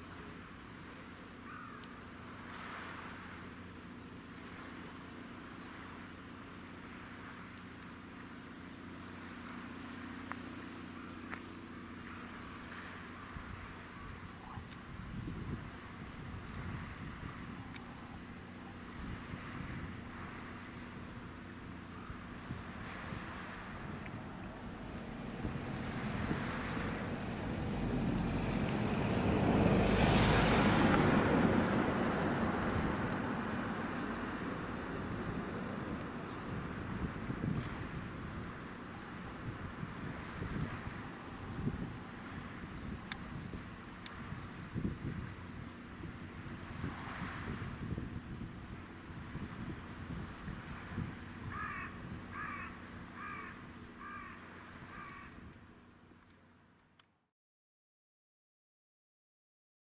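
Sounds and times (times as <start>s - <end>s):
crow cawing: 1.4s - 1.8s, 51.5s - 55.4s
wind rumble on microphone: 9.0s - 55.8s
vehicle passing by: 15.9s - 42.6s, 46.3s - 48.0s.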